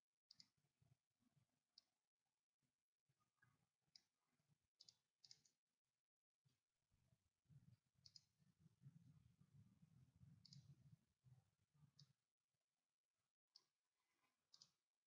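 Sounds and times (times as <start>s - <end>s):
faint computer mouse clicks: 8.0s - 8.3s, 10.4s - 10.8s, 14.5s - 14.9s.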